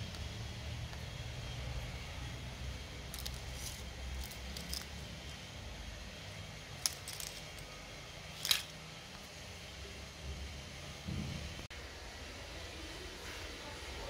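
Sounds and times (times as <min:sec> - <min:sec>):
plastic pieces clicking and rattling: 0:03.1 - 0:05.0, 0:06.8 - 0:07.7, 0:08.3 - 0:08.8.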